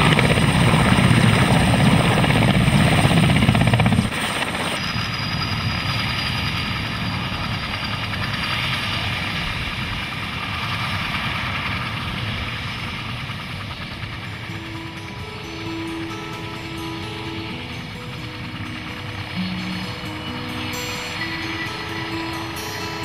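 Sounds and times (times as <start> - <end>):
helicopter rotor and engines: 0.0 - 23.0.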